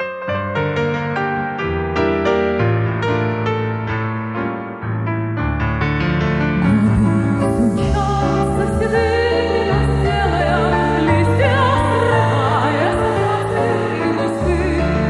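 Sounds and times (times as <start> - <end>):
piano accompaniment: 0.0 - 15.0
woman singing classical style: 6.6 - 15.0.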